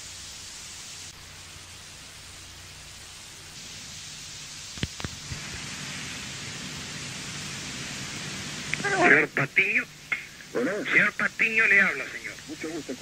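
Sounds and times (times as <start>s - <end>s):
steady hiss: 0.0s - 13.0s
low hum: 3.6s - 13.0s.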